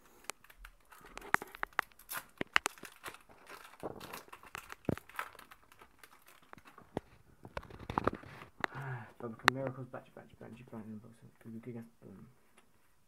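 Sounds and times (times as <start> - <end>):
foil wrapper tearing and crinkling: 0.2 - 8.8.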